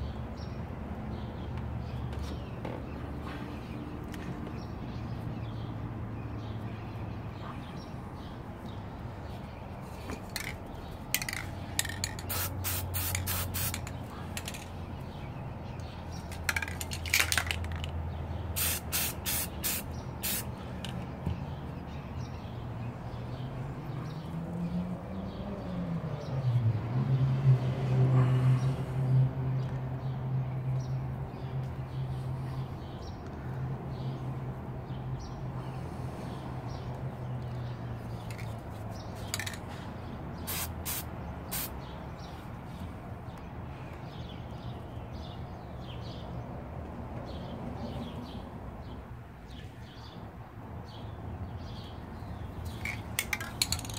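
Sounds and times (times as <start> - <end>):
spray can hissing: 11.2 - 14.6, 18.6 - 20.5, 40.5 - 41.7.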